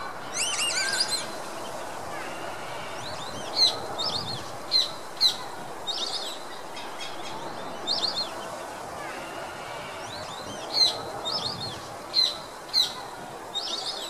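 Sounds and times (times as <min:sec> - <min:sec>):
ducks whistling calls: 0:00.0 - 0:01.6
steady background noise: 0:00.0 - 0:14.0.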